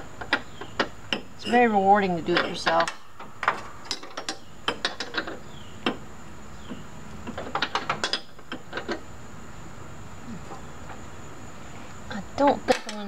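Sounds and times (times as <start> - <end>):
metal clicks and clinks: 12.5 - 13.0.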